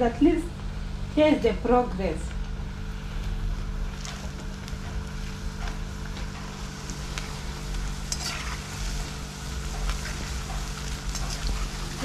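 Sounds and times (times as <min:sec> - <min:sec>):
fritters sizzling in hot oil: 0:02.3 - 0:12.0
slotted spoon scraping metal pan: 0:08.1 - 0:08.6.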